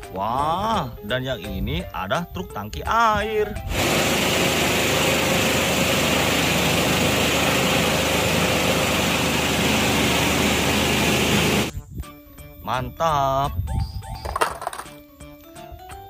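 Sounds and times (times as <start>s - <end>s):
truck engine rumbling with hiss: 3.7s - 11.7s.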